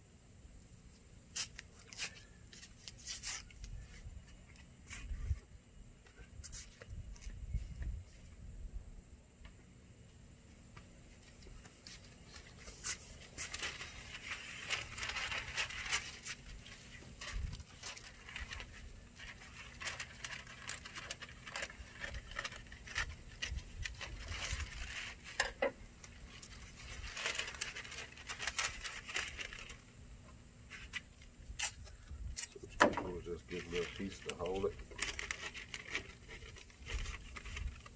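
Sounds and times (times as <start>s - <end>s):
paper rustling and crinkling: 1.4s - 5.4s, 11.1s - 29.9s, 30.7s - 37.9s.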